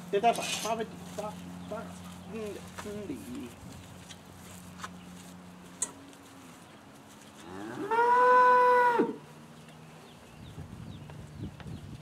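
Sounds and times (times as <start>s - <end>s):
cow mooing: 7.4s - 9.2s.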